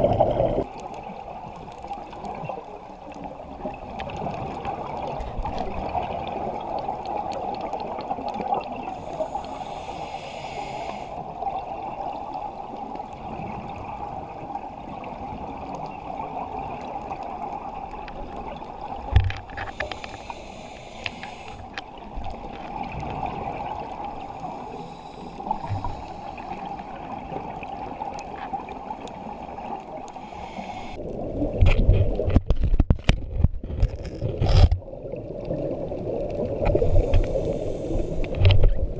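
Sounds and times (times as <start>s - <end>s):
bubbles gurgling: 0.0s - 2.6s, 3.4s - 8.9s, 22.0s - 24.6s, 34.8s - 37.4s
underwater water wash: 0.0s - 38.9s
diver regulator breathing hiss: 8.8s - 11.3s, 19.6s - 21.8s, 24.2s - 26.8s, 29.3s - 31.0s, 36.8s - 38.5s.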